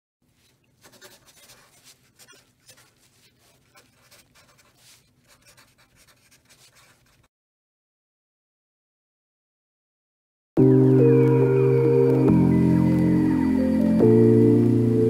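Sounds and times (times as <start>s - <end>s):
marker scratching on paper: 0.4s - 7.3s.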